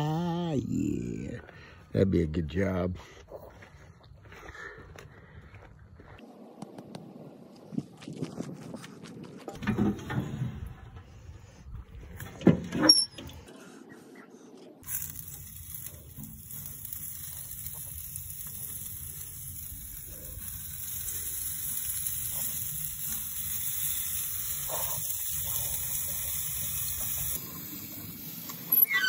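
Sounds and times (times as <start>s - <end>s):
steaks sizzling on a grill: 14.8s - 29.0s.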